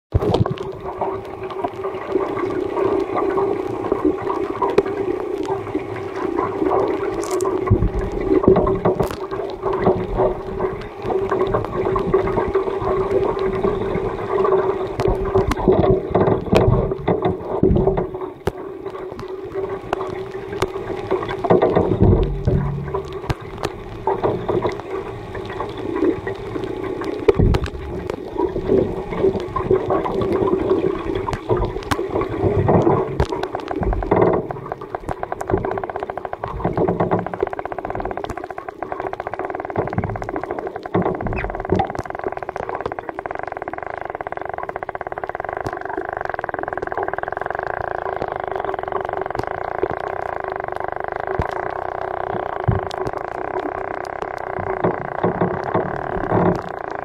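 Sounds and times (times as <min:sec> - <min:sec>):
water sloshing underwater: 0:00.1 - 0:57.0
steady hum: 0:04.5 - 0:36.7
dull thumps: 0:15.0 - 0:18.2, 0:21.4 - 0:24.8, 0:27.3 - 0:28.9.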